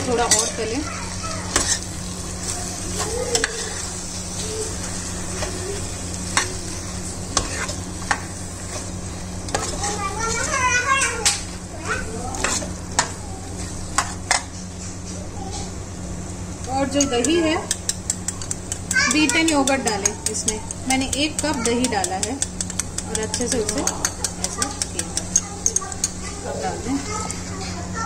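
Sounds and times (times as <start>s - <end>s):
chicken sizzling in a pan: 0.0s - 14.8s
spoon knocking against pan: 17.0s - 26.2s.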